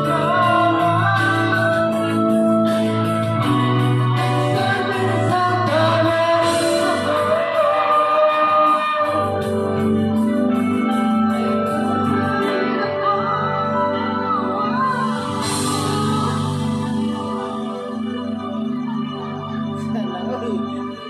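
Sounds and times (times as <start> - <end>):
man singing into a microphone: 0.0 - 10.3, 11.3 - 17.8
amplified music with a steady beat: 0.0 - 21.0.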